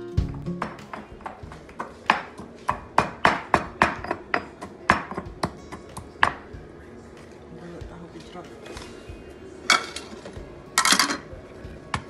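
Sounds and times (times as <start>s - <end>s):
pestle pounding in mortar: 0.2s - 6.4s.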